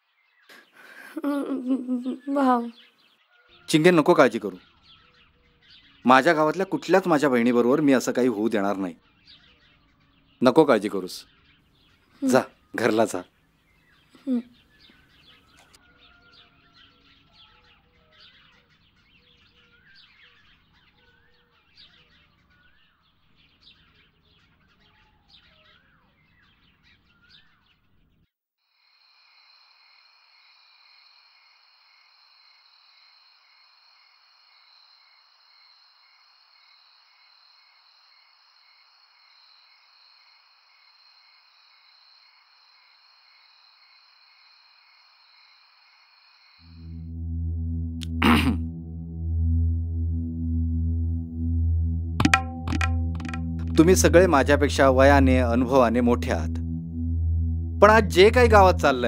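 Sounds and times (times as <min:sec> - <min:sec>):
songbirds chirping: 0:00.0 - 0:28.3
steady high drone with pulse: 0:46.8 - 0:59.0.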